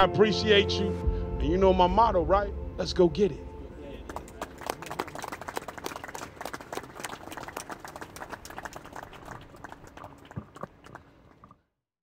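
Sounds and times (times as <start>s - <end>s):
audience applauding: 3.9s - 11.5s.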